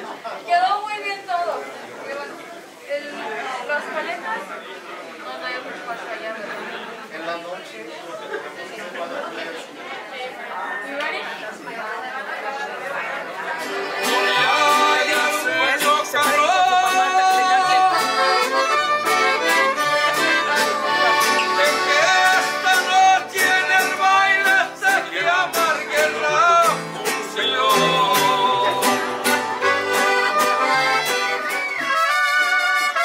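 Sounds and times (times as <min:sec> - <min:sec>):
strummed guitars: 0:13.6 - 0:33.0
violins playing melody: 0:17.9 - 0:22.7, 0:27.5 - 0:33.0.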